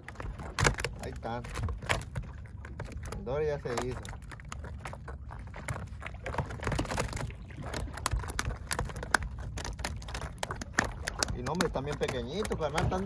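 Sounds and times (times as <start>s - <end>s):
boat engine rumble: 0.0s - 13.0s
water against hull: 0.0s - 13.0s
small clicks and knocks: 5.6s - 13.0s.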